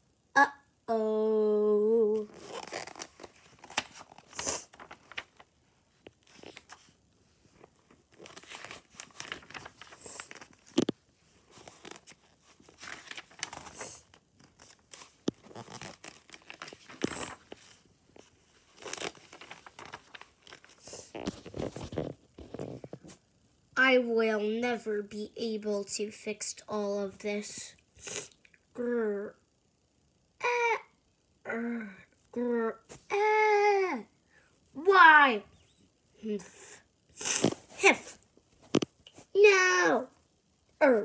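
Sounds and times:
paper pages rustling: 0:02.2 - 0:23.2.

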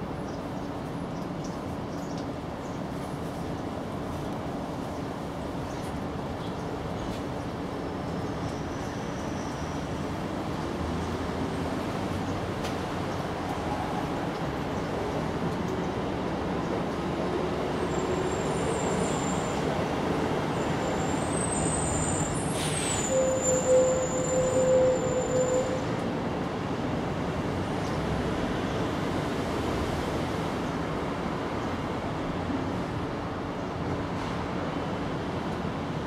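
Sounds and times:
faint high whistle: 0:21.8 - 0:25.9.

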